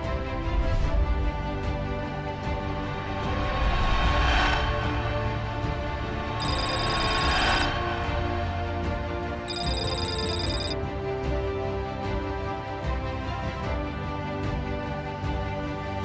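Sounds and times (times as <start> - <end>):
high ringing tone: 6.4 - 7.7, 9.5 - 10.8.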